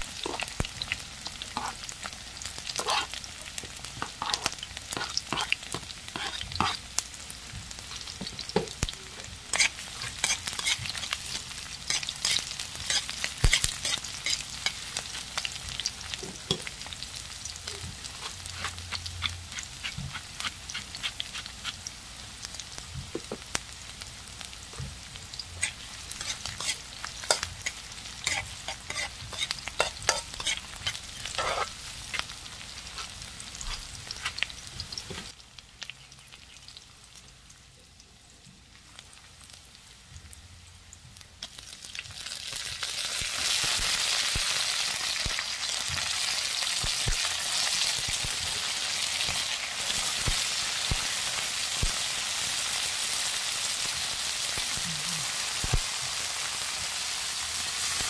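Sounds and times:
spatula scraping a wok: 0.0s - 1.9s, 2.6s - 7.0s, 9.1s - 17.0s, 17.8s - 21.9s, 25.6s - 35.3s
food sizzling in oil: 0.0s - 58.0s.

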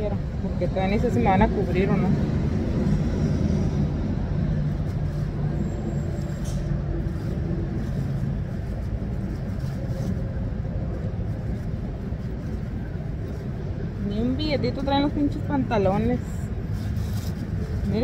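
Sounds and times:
constant low hum: 0.0s - 18.0s.

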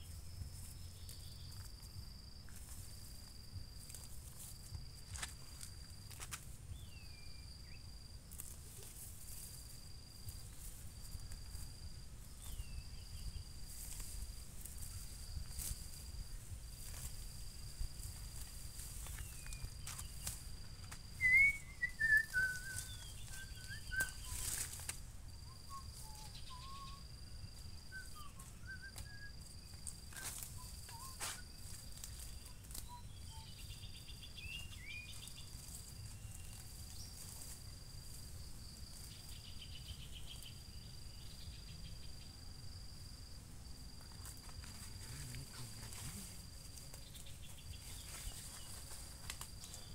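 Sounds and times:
high insect trill: 0.0s - 49.9s
weeds snapping and rustling: 13.7s - 21.2s, 21.8s - 25.1s, 28.9s - 33.2s, 44.0s - 49.9s
birds chirping: 21.2s - 24.6s.

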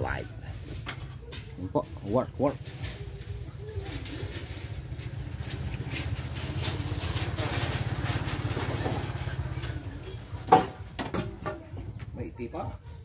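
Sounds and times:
motorcycle engine passing by: 3.4s - 10.5s.

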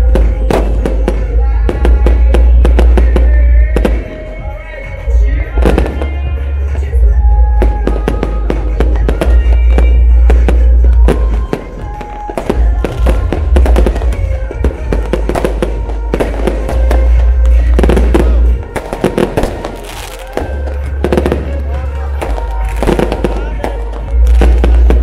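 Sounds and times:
fireworks bangs and crackles: 0.0s - 25.0s
music playing: 0.0s - 25.0s.

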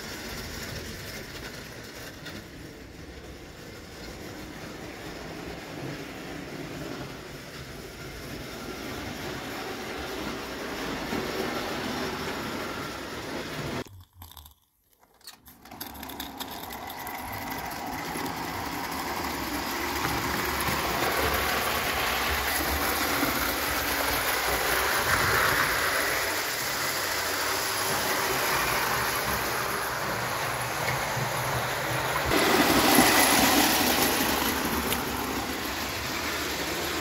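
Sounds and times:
toy train rumbling on track: 0.0s - 37.0s
steam hiss: 19.9s - 37.0s.

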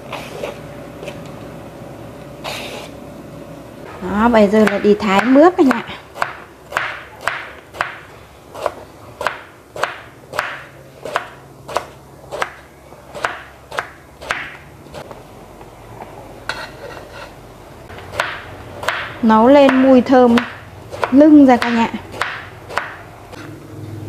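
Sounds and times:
cleaver chopping on wooden board: 6.2s - 8.0s, 8.6s - 12.6s, 18.1s - 23.0s.

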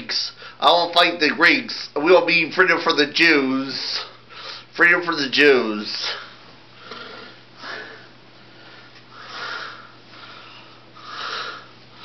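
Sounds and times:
person breathing: 0.4s - 0.6s, 4.0s - 4.7s, 6.0s - 12.0s.

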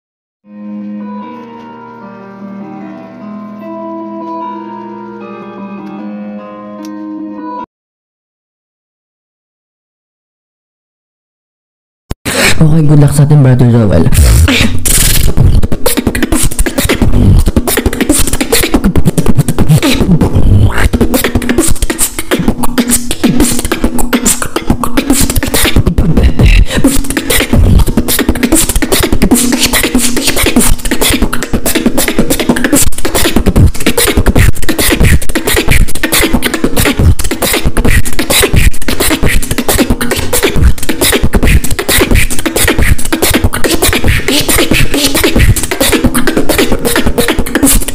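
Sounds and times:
beatboxing drum sounds and clicks: 14.1s - 47.9s.

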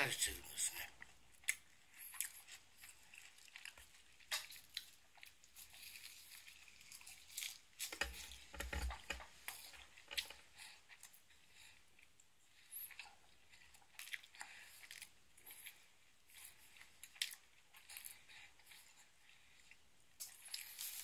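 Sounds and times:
biting and chewing: 0.8s - 21.0s.

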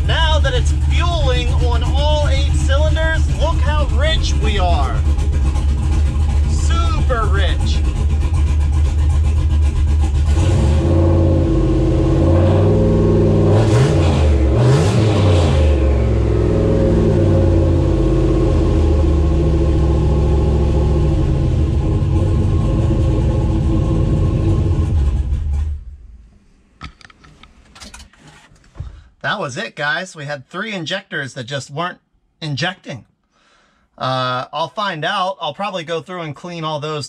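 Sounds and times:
car engine idling and revving: 0.0s - 28.5s.

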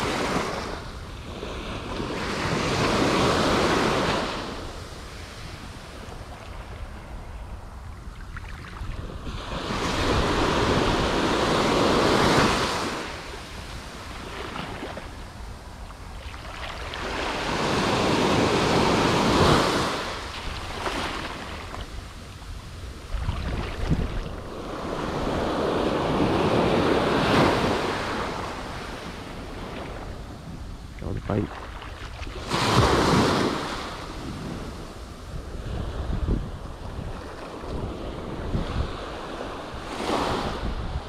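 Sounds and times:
wind rumbling on microphone: 0.0s - 41.0s
surf breaking on sand: 31.0s - 41.0s.

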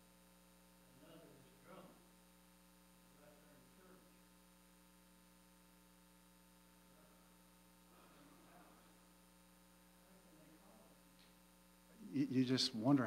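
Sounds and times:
electrical mains hum: 0.0s - 13.0s
faint distant voice: 7.9s - 9.1s.

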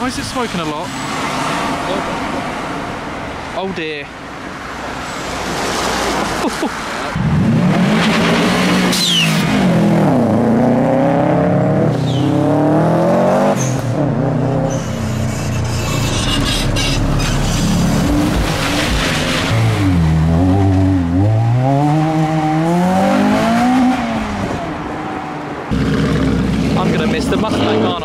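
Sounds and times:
car engine revving: 7.1s - 28.0s.

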